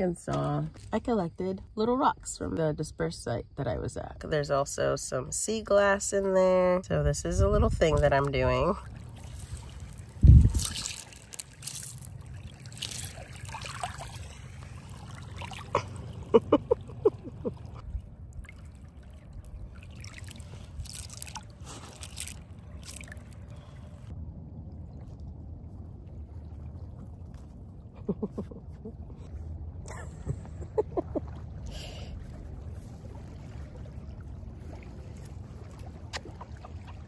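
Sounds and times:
small waves lapping on pebbles: 0:08.2 - 0:16.4, 0:17.5 - 0:24.1, 0:31.1 - 0:37.0
wet stones clicking: 0:10.0 - 0:13.3, 0:20.8 - 0:23.4.

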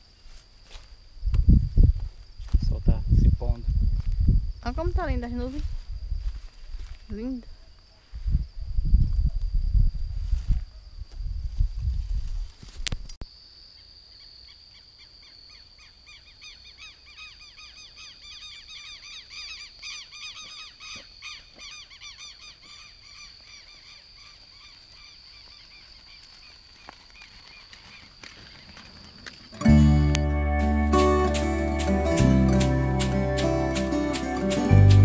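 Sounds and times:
high-pitched insect drone: 0:29.6 - 0:35.0.

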